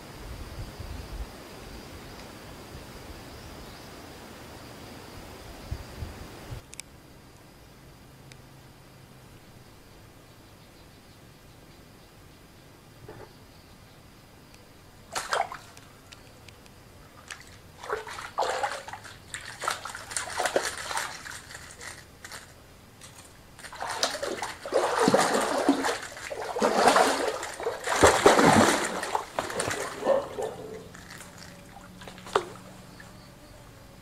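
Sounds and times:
fish splashing in water: 15.1s - 16.3s, 17.0s - 33.1s.

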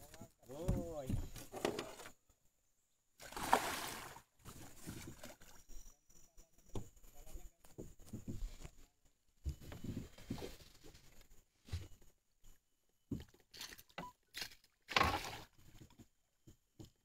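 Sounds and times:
fish thrashing and splashing: 3.2s - 4.2s.

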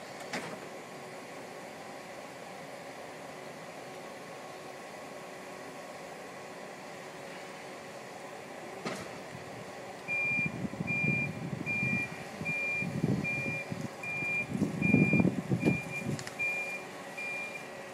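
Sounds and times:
forklift reversing alarm beeping: 10.1s - 17.8s.

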